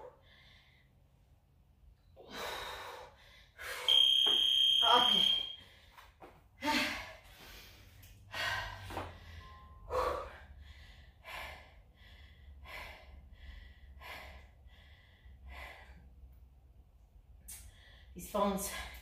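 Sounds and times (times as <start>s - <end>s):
woman breathing hard: 0.0s - 1.2s, 2.2s - 3.9s, 5.6s - 16.4s.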